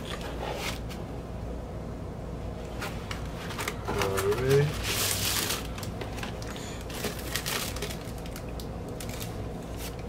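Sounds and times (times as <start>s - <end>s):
plastic crinkling and rustling: 2.7s - 10.0s.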